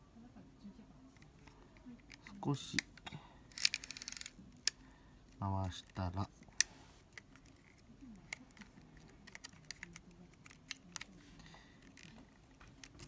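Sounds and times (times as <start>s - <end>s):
small clicks handling camera: 3.5s - 4.8s.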